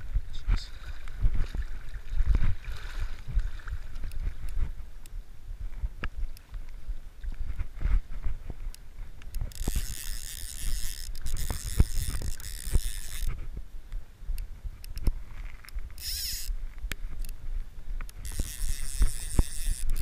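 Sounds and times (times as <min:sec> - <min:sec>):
fly reel ratcheting buzz: 0:09.4 - 0:13.3, 0:16.0 - 0:16.5, 0:18.2 - 0:20.0.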